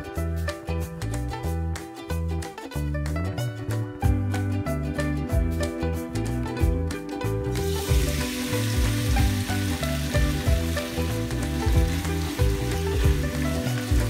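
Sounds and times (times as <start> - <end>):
background music: 0.0 - 14.0
meat sizzling in hot oil: 7.6 - 14.0.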